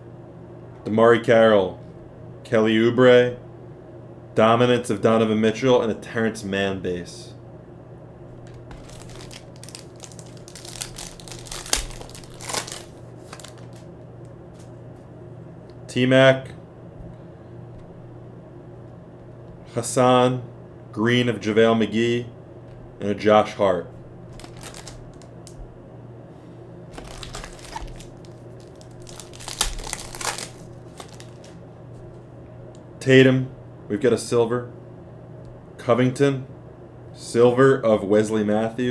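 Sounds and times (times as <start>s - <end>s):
plastic wrapper crinkling and tearing: 8.5s - 13.9s, 24.3s - 25.6s, 26.9s - 31.6s
sharp crack: 10.1s - 12.9s, 28.8s - 31.6s.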